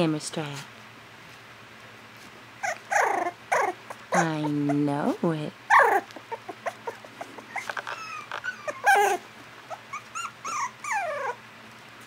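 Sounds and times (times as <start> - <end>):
puppy whimpering: 2.6 - 11.4.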